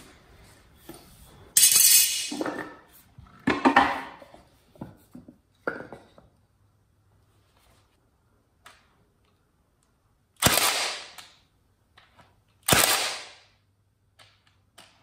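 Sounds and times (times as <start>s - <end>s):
tools clattering on concrete: 1.6s - 6.3s.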